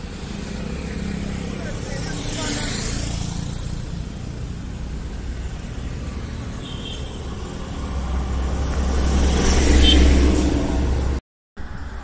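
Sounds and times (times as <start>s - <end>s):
motorcycle passing: 0.0s - 11.2s
bus passing: 0.0s - 12.0s.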